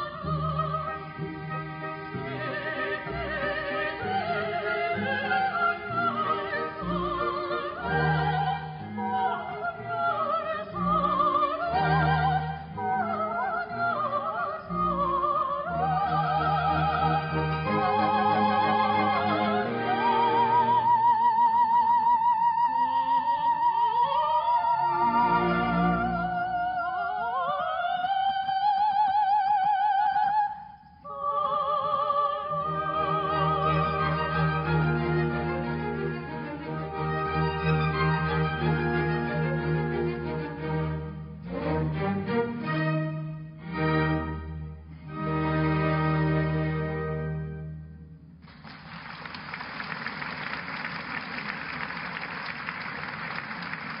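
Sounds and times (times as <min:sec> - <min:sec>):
operatic duet singing: 0:00.0 - 0:36.8
orchestra: 0:00.0 - 0:54.0
audience applause: 0:48.5 - 0:54.0.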